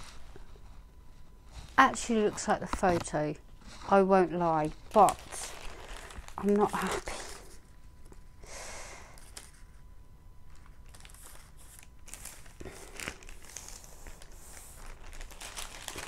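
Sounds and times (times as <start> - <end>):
canvas sheet rustling and crinkling: 0.0 - 7.6, 10.5 - 16.0.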